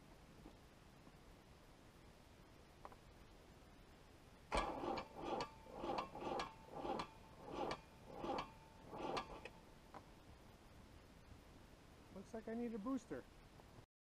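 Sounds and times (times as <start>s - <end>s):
faint steady whine: 0.0s - 13.8s
starter motor cranking diesel engine: 4.5s - 9.5s.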